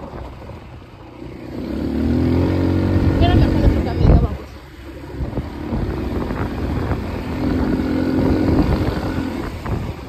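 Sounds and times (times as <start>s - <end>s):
small vehicle engine running: 0.0s - 10.0s
wind buffeting microphone: 0.0s - 10.0s.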